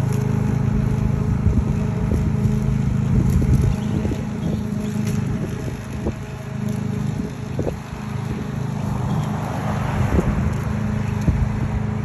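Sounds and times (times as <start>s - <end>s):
lawn mower running: 0.0s - 12.0s.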